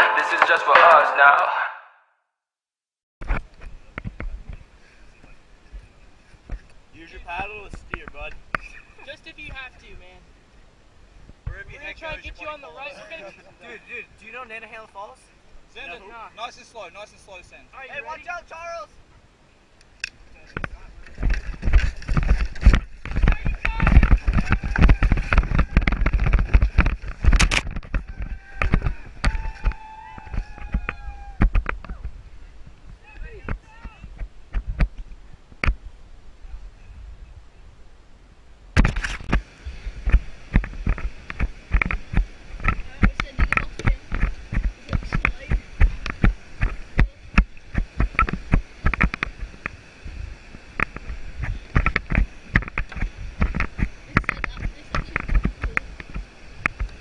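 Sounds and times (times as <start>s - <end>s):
water rushing and splashing: 20.1s - 34.4s, 38.7s - 57.0s
kayak hull scraping over ground: 20.3s - 32.1s, 38.8s - 57.0s.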